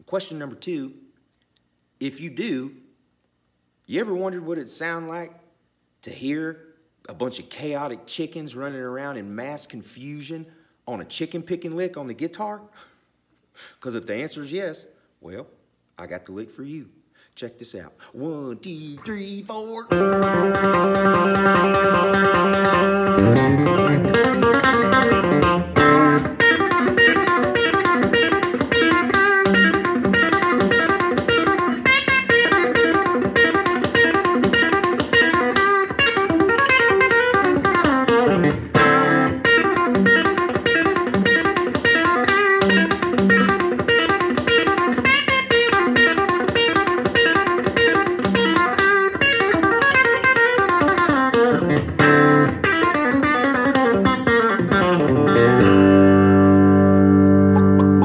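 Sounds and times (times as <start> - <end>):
electric guitar chicken picking: 18.9 - 58.0.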